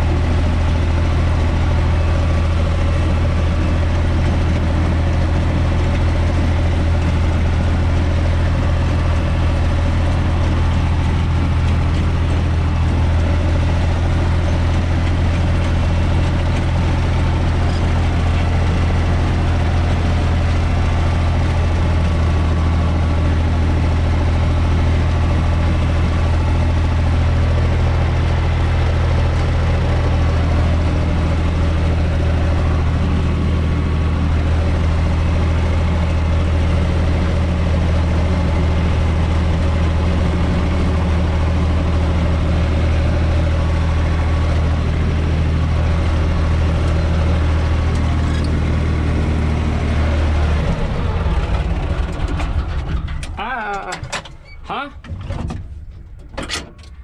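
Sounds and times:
tractor diesel engine running: 0:00.0 - 0:57.0.

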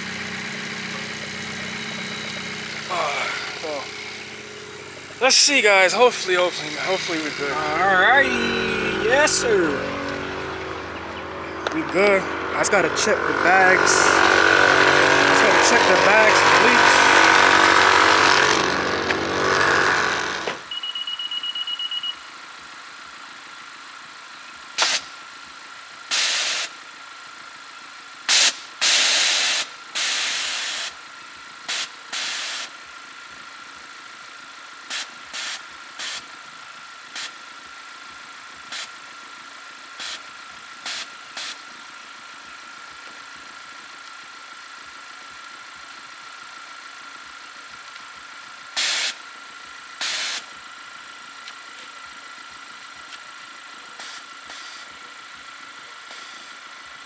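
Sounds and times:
short high beep: 0:06.4 - 0:11.6, 0:20.7 - 0:22.2
air valves hissing bursts: 0:48.8 - 0:49.2, 0:50.0 - 0:50.5.

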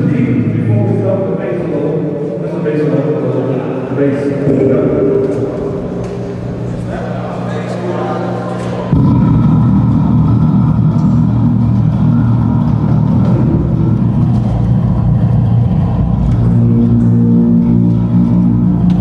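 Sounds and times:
distorted electric bass line: 0:04.4 - 0:19.0.

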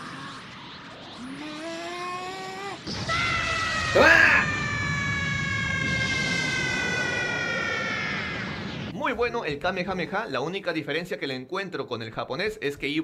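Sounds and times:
high-pitched falling tone: 0:00.0 - 0:09.0
rising whoosh: 0:00.0 - 0:09.4.

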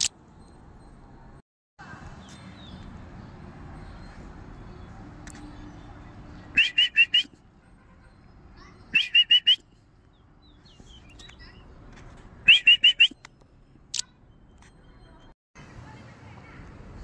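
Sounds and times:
high whistled chirps: 0:06.6 - 0:07.4, 0:08.8 - 0:09.8, 0:12.4 - 0:13.3.

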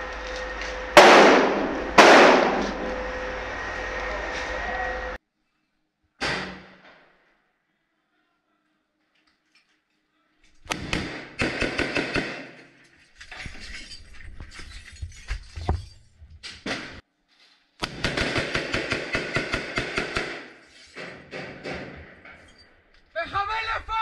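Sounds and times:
automatic rifle fire: 0:01.0 - 0:02.7, 0:10.7 - 0:12.5, 0:17.8 - 0:20.5
single gunshots: 0:01.0 - 0:02.8.

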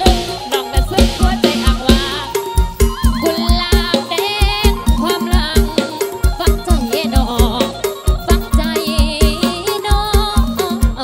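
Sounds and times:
drum kit fast beat: 0:00.0 - 0:11.0
electric guitar: 0:00.0 - 0:11.0
woman singing: 0:00.0 - 0:11.0.

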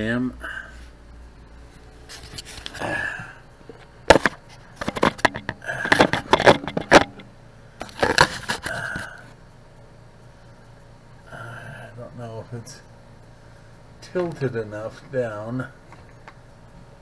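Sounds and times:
camera handling knocks and scrapes: 0:03.7 - 0:07.2, 0:07.8 - 0:09.1.

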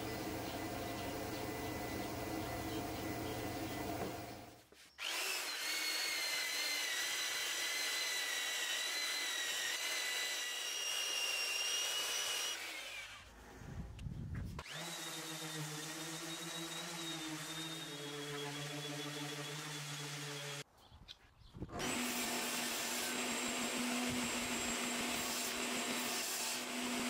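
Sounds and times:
orbital sander humming: 0:00.0 - 0:10.4, 0:21.8 - 0:27.0
belt sander whining: 0:00.0 - 0:13.3, 0:21.8 - 0:27.0.

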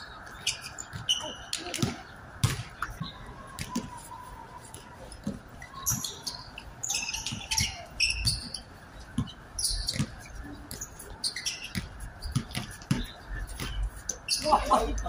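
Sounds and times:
basketball bouncing on court: 0:00.8 - 0:04.0, 0:07.1 - 0:14.7.

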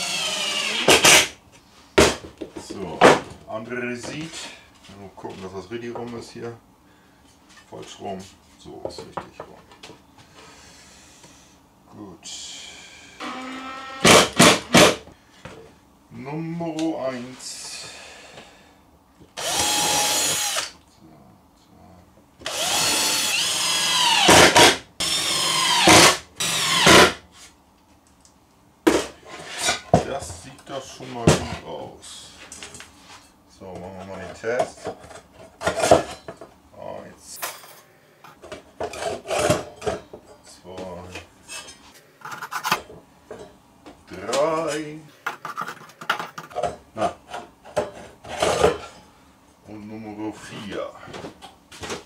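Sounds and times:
electric drill running: 0:00.0 - 0:01.2, 0:19.4 - 0:20.7, 0:22.5 - 0:27.1.

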